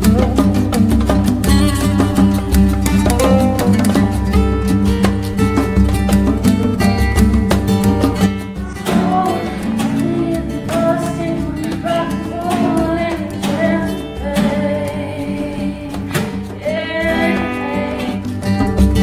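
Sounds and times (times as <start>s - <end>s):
person singing: 0.0s - 4.5s, 8.4s - 19.0s
acoustic guitar: 0.0s - 19.0s.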